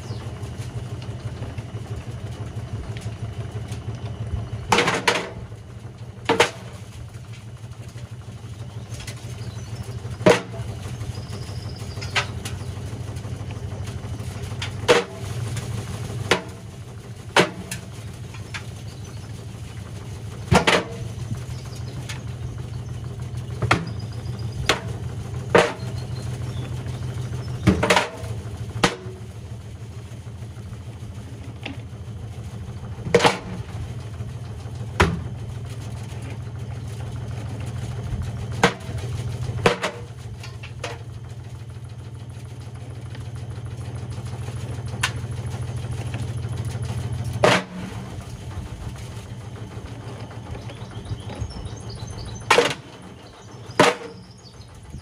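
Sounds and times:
washing machine humming: 0.0 - 55.0
stones banging in drum: 20.5 - 21.0, 27.6 - 29.1, 33.1 - 33.6, 38.6 - 39.0, 39.6 - 40.1, 47.4 - 48.0, 53.8 - 54.2.

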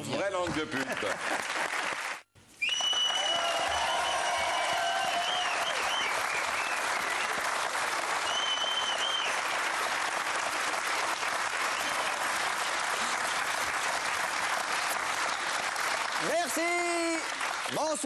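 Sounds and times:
audience applauding: 0.6 - 18.0
shrill whistles: 2.6 - 7.4, 8.2 - 9.4.

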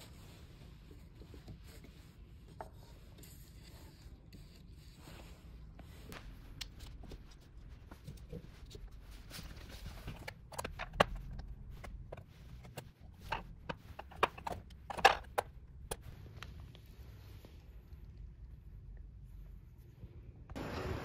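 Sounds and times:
clay pieces knocking and tapping: 9.5 - 16.1.

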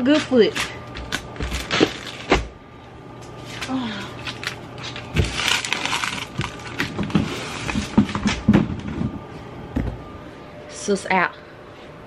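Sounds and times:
packaging rustling: 4.2 - 8.2.

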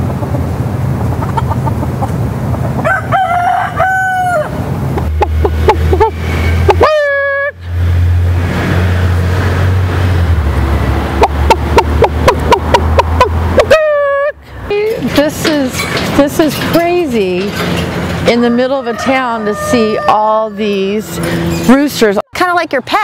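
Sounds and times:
steady low rumble: 0.0 - 3.0, 4.4 - 6.8
roosters crowing: 2.7 - 7.6, 16.5 - 21.9.

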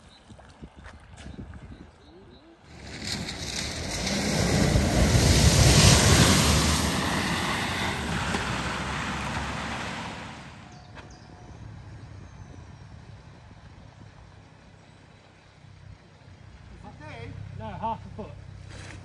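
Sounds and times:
vehicle engine: 2.6 - 19.0
water splashing: 2.7 - 10.7.

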